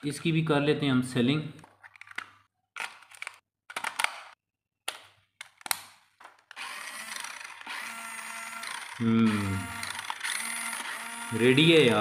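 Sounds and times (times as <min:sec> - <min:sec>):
plastic clicks and rattles: 0:01.6 - 0:06.6
mechanical whirr: 0:06.6 - 0:12.0.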